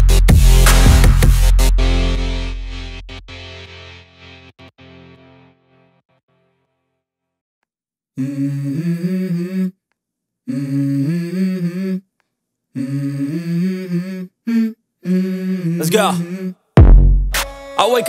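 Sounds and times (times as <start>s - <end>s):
person humming a cappella: 8.2s - 9.8s, 10.5s - 12.1s, 12.7s - 16.6s.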